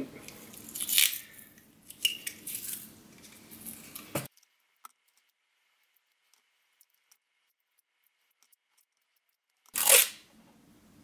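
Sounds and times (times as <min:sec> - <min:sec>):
masking tape pulled off roll: 0:09.7 - 0:10.3.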